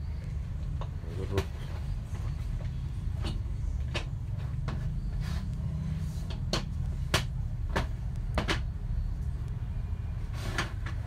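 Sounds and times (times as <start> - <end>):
hard plastic clicks and knocks: 6.3 - 8.8.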